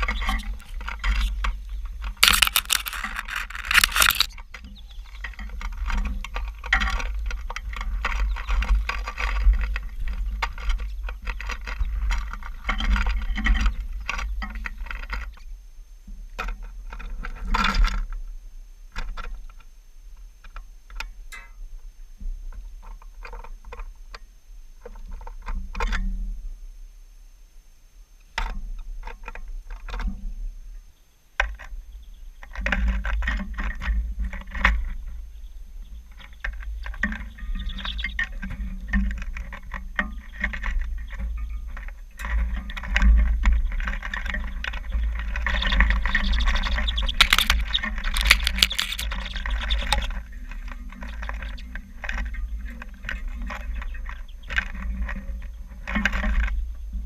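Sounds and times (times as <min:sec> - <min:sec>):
birds pecking seed in feeder: 0:00.0 - 0:15.4, 0:31.4 - 0:57.0.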